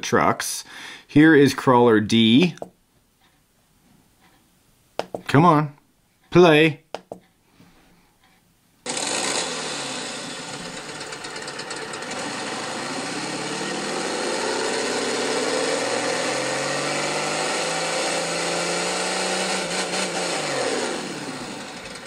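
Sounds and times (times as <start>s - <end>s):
truck engine idling and revving: 8.9s - 22.0s.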